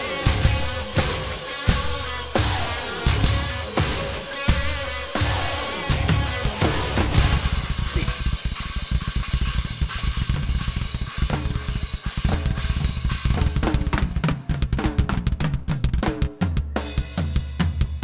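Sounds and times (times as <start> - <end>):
crashing cymbals: 0.0 - 13.9
ringing tom hits: 6.4 - 14.2.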